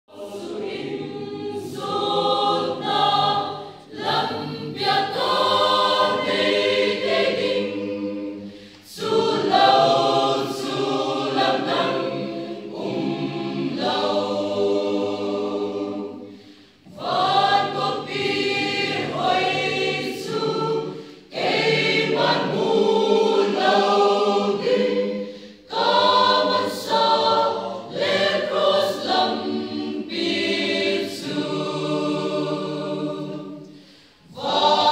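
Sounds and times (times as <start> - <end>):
mixed choir singing: 0.1 - 34.9.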